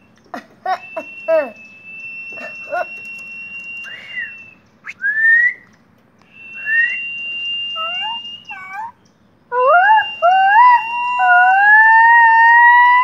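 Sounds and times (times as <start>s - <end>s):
myna whistling and calling: 0.9s - 5.7s, 6.3s - 9.1s.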